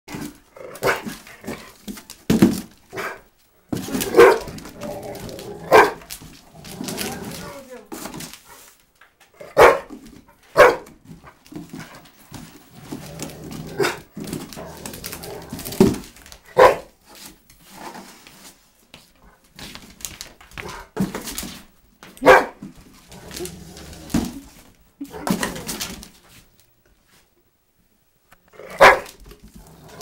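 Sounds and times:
dog barking: 0:04.1 - 0:04.5, 0:05.7 - 0:06.0, 0:09.4 - 0:09.9, 0:10.6 - 0:10.9, 0:16.6 - 0:16.9, 0:22.2 - 0:22.6, 0:28.8 - 0:29.2.

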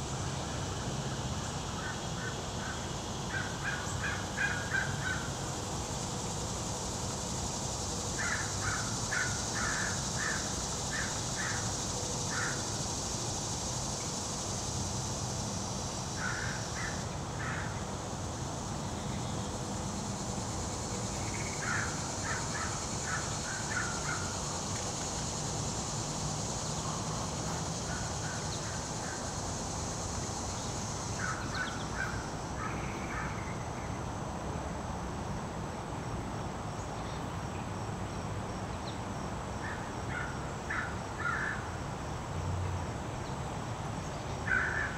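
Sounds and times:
crow cawing: 0:16.2 - 0:17.8, 0:21.6 - 0:24.3, 0:39.6 - 0:41.6, 0:44.5 - 0:44.9.

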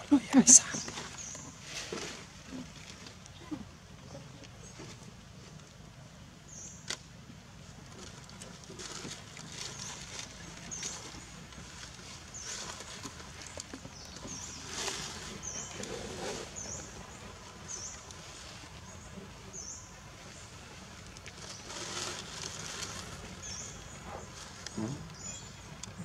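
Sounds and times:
dry leaves crackling and rustling: 0:07.9 - 0:19.2, 0:20.3 - 0:24.8.

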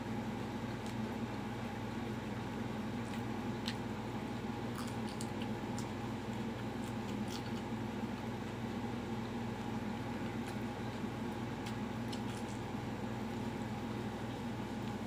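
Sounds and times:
steady background hum: 0:00.0 - 0:15.0
person chewing fried chicken: 0:04.6 - 0:08.6, 0:09.5 - 0:12.8.

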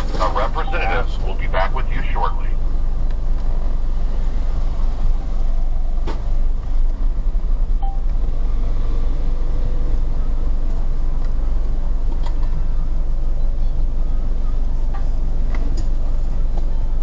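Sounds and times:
car cabin rumble: 0:00.0 - 0:03.9.

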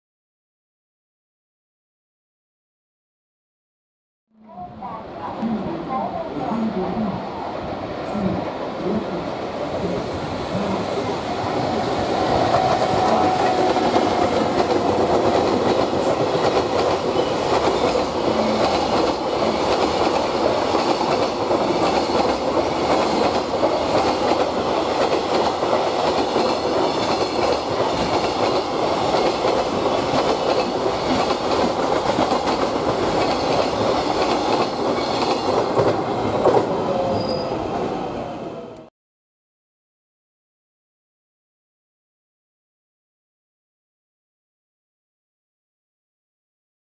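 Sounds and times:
freight train wheels rumbling on rails: 0:04.6 - 0:38.8.

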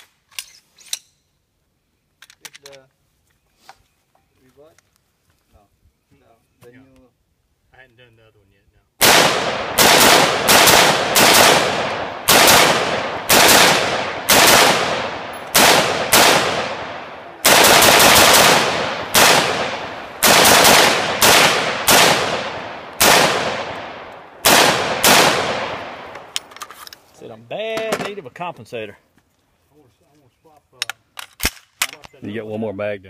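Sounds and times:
rifle gunshots echoing: 0:09.0 - 0:26.5.

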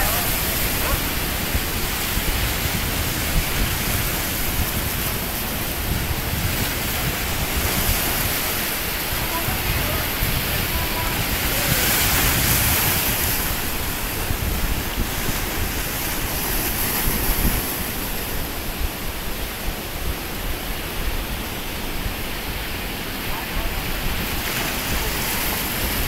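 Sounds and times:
surf breaking on rocks: 0:00.0 - 0:26.0
wind buffeting microphone: 0:00.0 - 0:26.0.

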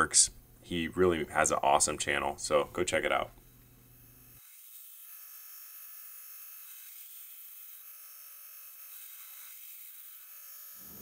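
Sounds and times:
belt grinder grinding steel: 0:03.0 - 0:11.0.

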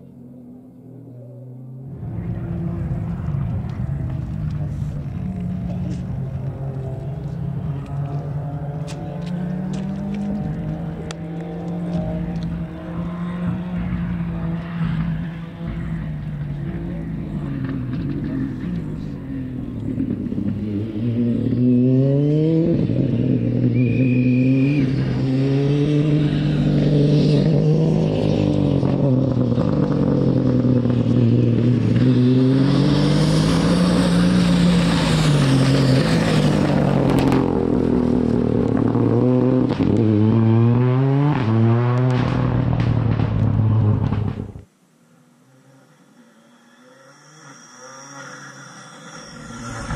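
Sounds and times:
rally car engine revving: 0:00.0 - 0:49.9
gravel and tyre hiss: 0:29.8 - 0:38.9, 0:43.3 - 0:49.9.

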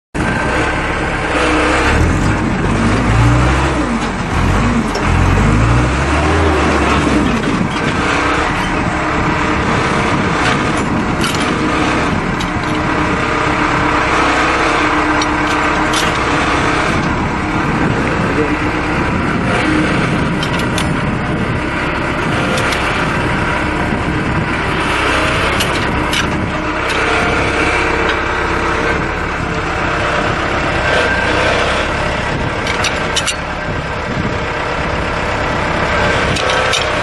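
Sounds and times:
machine engine running: 0:00.2 - 0:37.0.

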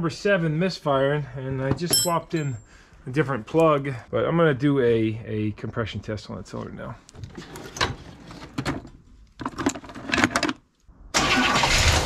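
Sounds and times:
starter cranking engine: 0:11.2 - 0:12.0.

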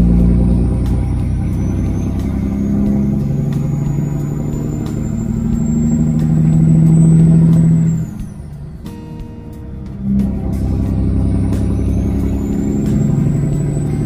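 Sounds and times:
turbo whistle: 0:00.0 - 0:08.8, 0:10.0 - 0:14.0
diesel truck engine under load: 0:00.0 - 0:14.0.

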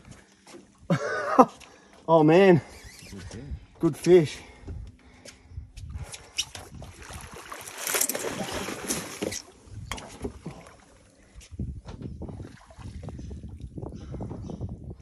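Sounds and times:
fish thrashing in water: 0:06.3 - 0:10.9.

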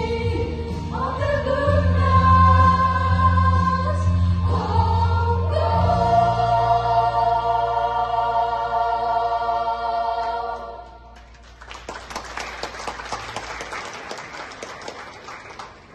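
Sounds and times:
women's choir singing chord: 0:00.0 - 0:11.1
audience applause: 0:11.2 - 0:15.9.

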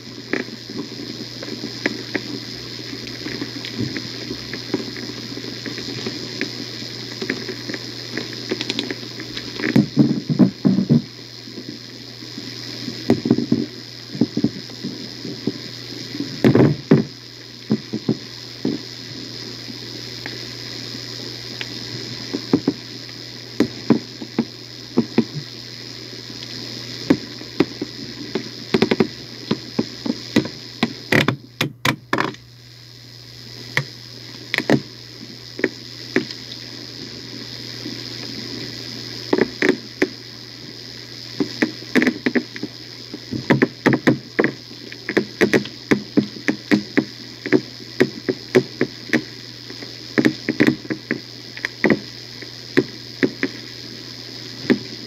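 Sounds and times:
steady hum and hiss: 0:00.0 - 0:55.0
irregular knocks and clicks: 0:27.1 - 0:32.4, 0:43.3 - 0:49.3, 0:50.2 - 0:52.1.

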